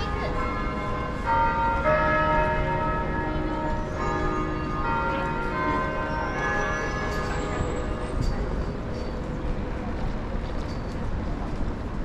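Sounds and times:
bells chiming: 0.0 - 9.2
busy city square noise: 0.0 - 12.0.

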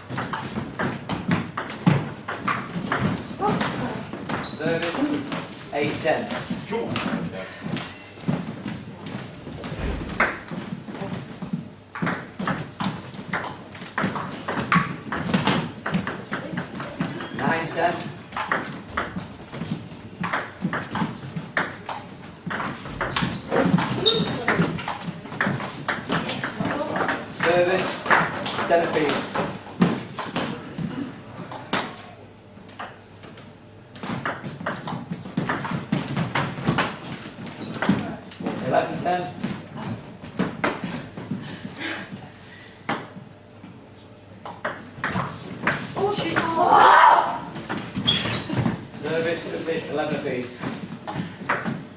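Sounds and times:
table tennis ball hits: 0.1 - 5.5, 10.0 - 10.6, 11.9 - 19.3, 20.2 - 29.5, 31.5 - 32.1, 34.0 - 37.0, 37.7 - 38.2, 42.9 - 43.2, 44.4 - 46.6, 51.1 - 51.8
brief high squeak: 30.3 - 30.7.

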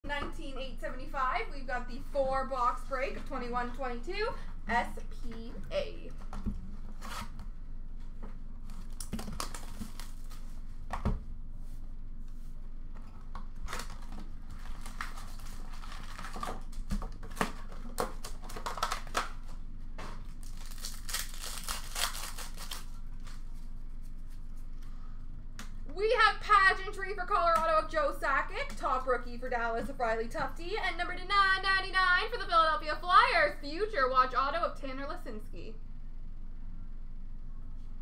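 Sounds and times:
foil wrappers tearing and crinkling: 8.7 - 10.6, 13.5 - 19.6, 20.2 - 23.5.

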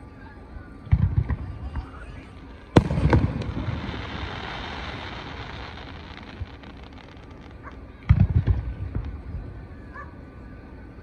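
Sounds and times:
firework bangs: 0.9 - 9.3
firework burst rumble: 0.9 - 9.5.

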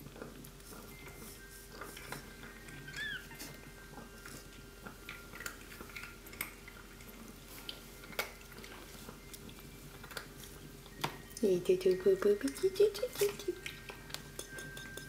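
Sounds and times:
kittens rustling on towels: 0.1 - 4.6, 6.9 - 11.3.

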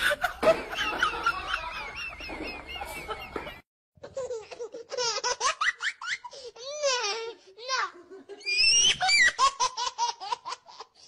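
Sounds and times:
burst of laughter: 0.0 - 3.6.

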